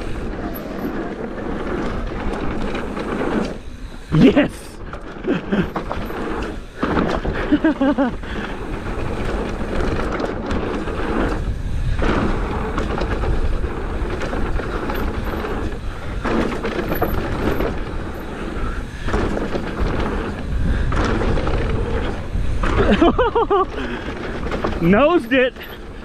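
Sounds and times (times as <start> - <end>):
bike rattling: 0.0 - 26.0
wind buffeting microphone: 0.0 - 26.0.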